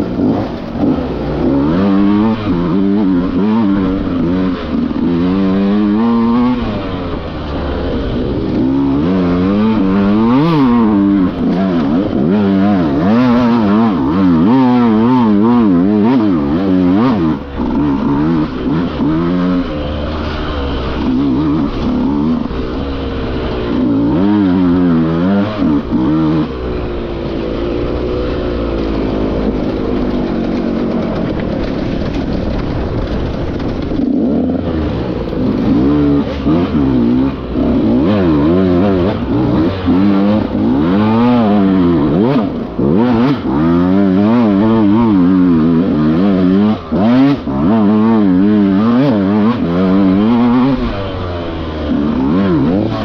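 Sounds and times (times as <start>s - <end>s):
dirt bike engine revving: 0.0s - 53.0s.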